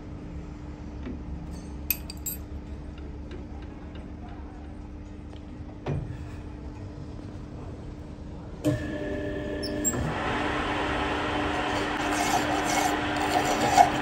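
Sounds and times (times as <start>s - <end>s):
chuck key clinking on metal: 1.9s - 2.4s.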